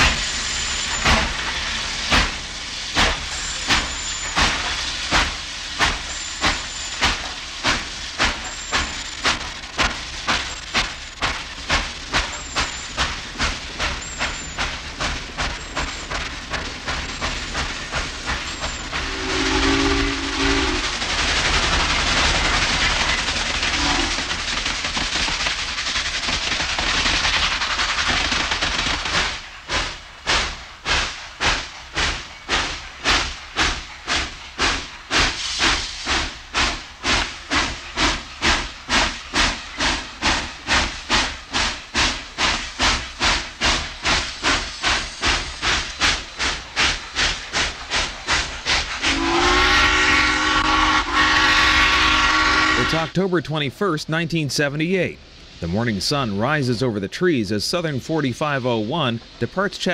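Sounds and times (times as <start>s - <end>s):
locomotive exhaust chuffs: 0.0s - 59.9s
rush of steam and running noise: 0.0s - 59.9s
steam whistle blast: 18.9s - 21.0s, 49.1s - 53.1s.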